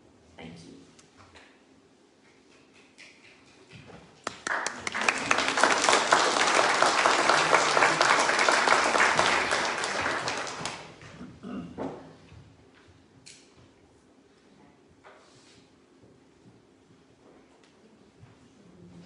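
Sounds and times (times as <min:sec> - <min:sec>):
congregation applauding: 0:04.2 - 0:11.0.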